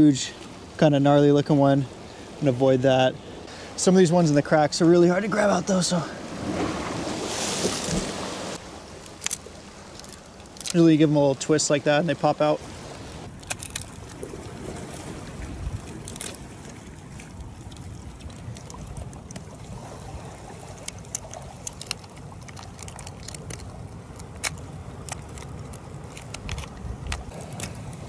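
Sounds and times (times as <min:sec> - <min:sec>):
surf rumbling: 0:00.0 - 0:28.0
mussel shells clacking: 0:09.0 - 0:10.9, 0:13.3 - 0:14.2, 0:20.7 - 0:28.0.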